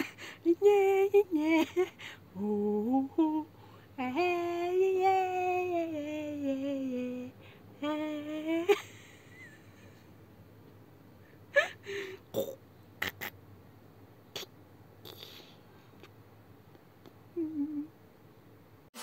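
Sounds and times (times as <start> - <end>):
person humming: 0.0 - 9.5, 14.3 - 15.6, 17.0 - 18.0.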